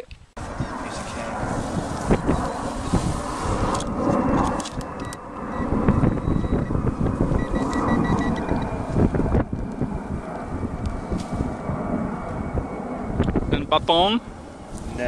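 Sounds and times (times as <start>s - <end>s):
wind buffeting microphone: 0.1s - 15.0s
metal detector beeps: 5.0s - 8.6s.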